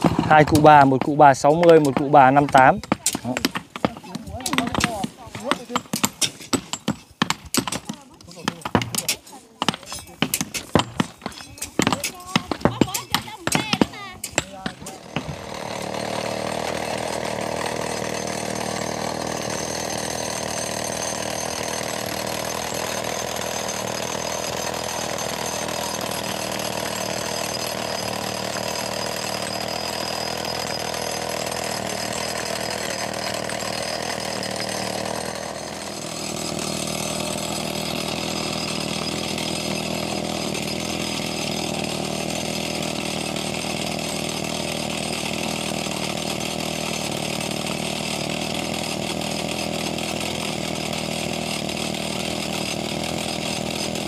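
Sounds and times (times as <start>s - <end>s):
small engine running: 11.8s - 54.0s.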